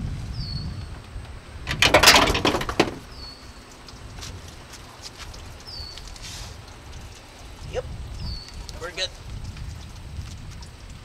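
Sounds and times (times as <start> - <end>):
loud rattling scrape: 1.7 - 3.0.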